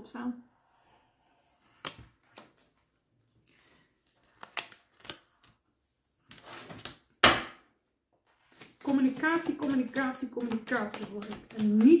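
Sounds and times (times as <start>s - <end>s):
cards shuffling: 4.0s - 5.6s, 8.3s - 12.0s
cards clicking and tapping on table: 8.5s - 12.0s.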